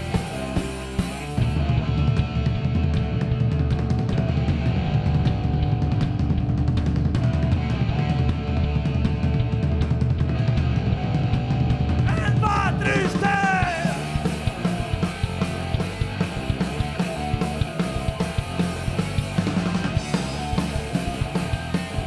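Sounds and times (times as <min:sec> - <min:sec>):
punk metal band playing live: 0:00.0 - 0:22.0
person shouting: 0:12.1 - 0:14.2.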